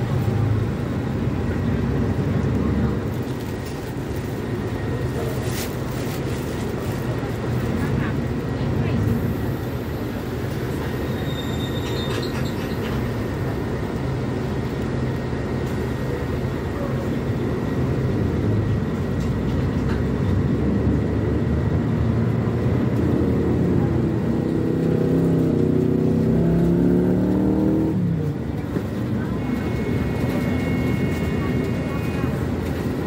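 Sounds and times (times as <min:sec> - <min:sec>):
bus diesel engine running: 0:00.0 - 0:33.0.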